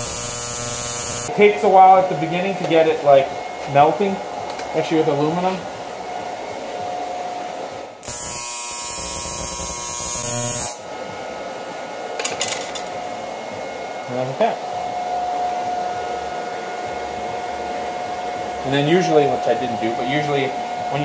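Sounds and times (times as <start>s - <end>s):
welding arc buzzing hiss: 0.0s - 1.3s, 8.0s - 10.8s
steady hum: 0.0s - 21.0s.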